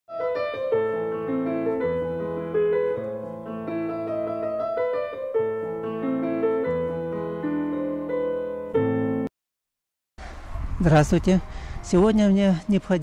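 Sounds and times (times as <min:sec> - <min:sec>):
keyboard melody: 0:00.1 - 0:09.3
sustained low bass notes: 0:10.5 - 0:13.0.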